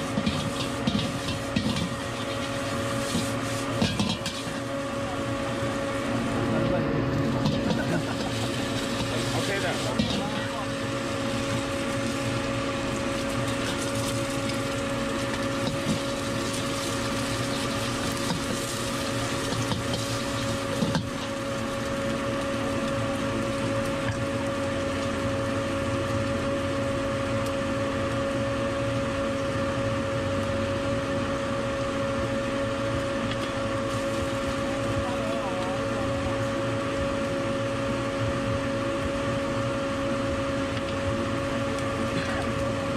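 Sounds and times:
metal spatula scraping wok: 0.0 - 4.7
food sizzling in oil: 0.0 - 6.1, 7.2 - 27.3, 32.4 - 35.3
burner and fans humming: 0.0 - 42.9.

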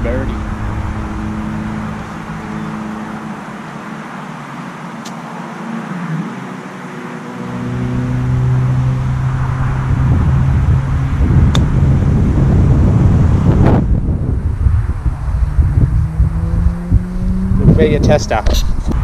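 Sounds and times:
motor engine humming: 0.0 - 19.0
golf club hitting ball: 11.5 - 11.7.

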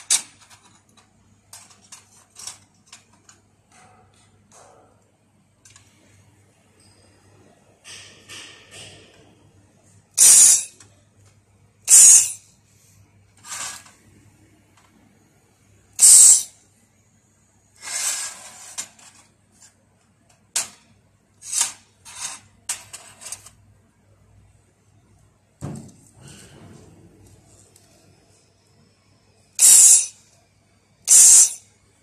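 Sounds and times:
laser welder hissing bursts: 16.0 - 16.5, 29.6 - 30.1, 31.1 - 31.6.

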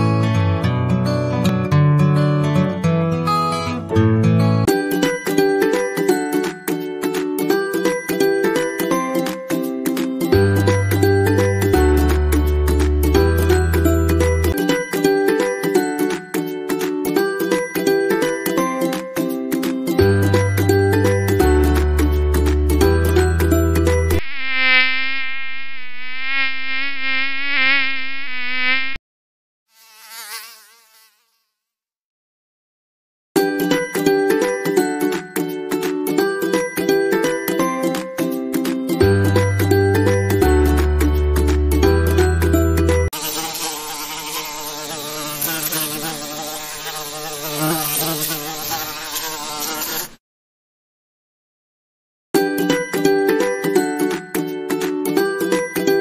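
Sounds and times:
mosquito buzzing: 24.2 - 29.0, 29.7 - 31.7, 43.1 - 50.2.

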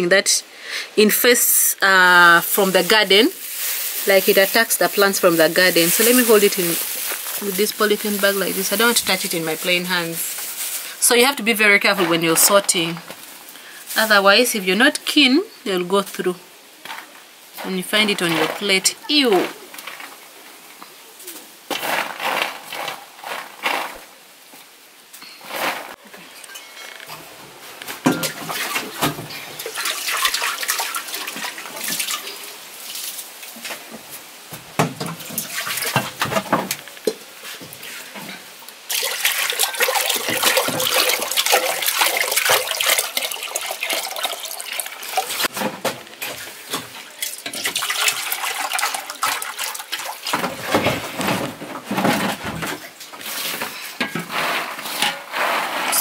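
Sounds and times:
water pouring into a metal bowl: 29.6 - 32.5, 38.9 - 45.5, 47.1 - 50.3.

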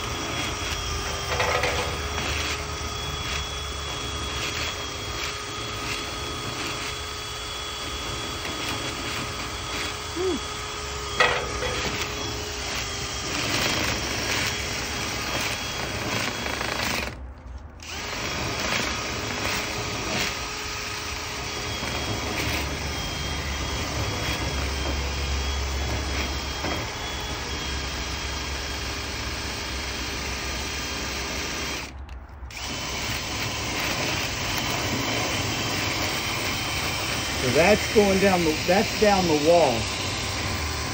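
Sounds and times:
cordless drill motor whine: 0.0 - 17.2, 17.8 - 40.9
rod scraping and rattling in duct: 0.7 - 2.6.

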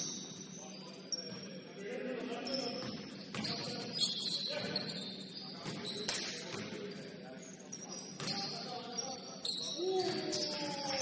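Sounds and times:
players' voices: 0.5 - 11.0
sneakers squeaking on hardwood: 2.5 - 6.3.

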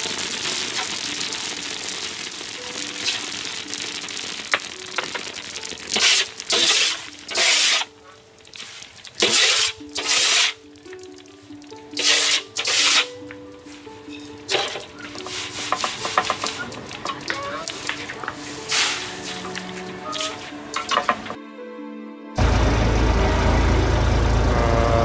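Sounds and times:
crackling hiss with pops: 0.0 - 21.4
background music with held notes: 0.0 - 25.0
rasping swishes of sieve: 6.0 - 7.9, 8.6 - 10.6, 12.0 - 13.1, 14.6 - 16.0, 17.7 - 19.5.

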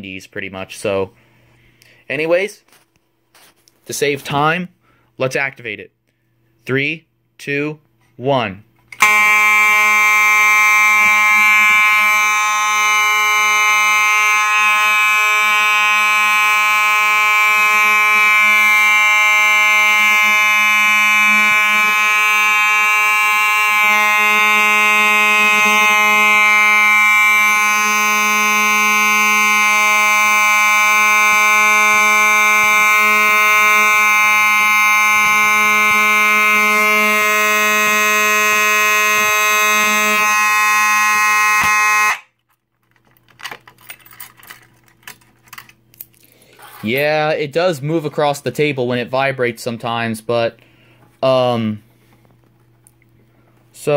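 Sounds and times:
fire alarm horn buzzing: 8.9 - 42.4.

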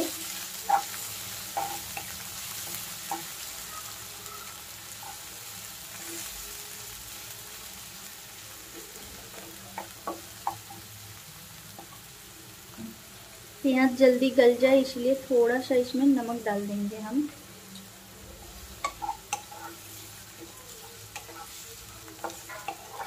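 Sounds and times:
onions sizzling in oil: 0.0 - 23.0
wooden spatula scraping pan: 18.8 - 23.0.

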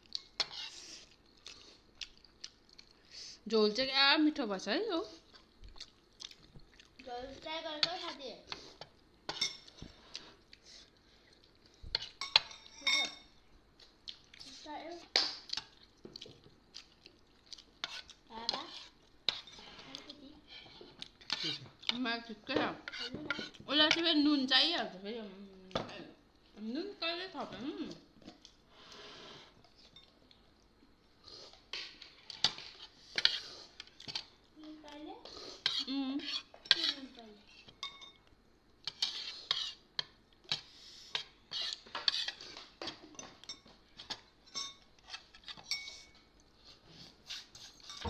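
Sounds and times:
metal spoons clinking on dishes: 12.2 - 13.3, 37.8 - 38.2, 43.2 - 44.9, 45.5 - 46.2.

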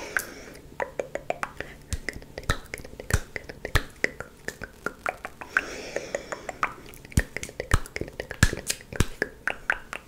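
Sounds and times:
breathy hiss: 0.0 - 0.7, 5.4 - 8.4
wet tongue clicks and pops: 0.2 - 5.7, 6.5 - 10.0.

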